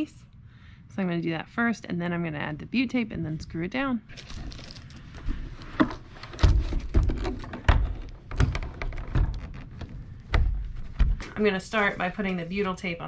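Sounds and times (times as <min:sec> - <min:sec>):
plastic housing thudding: 0:05.7 - 0:11.4.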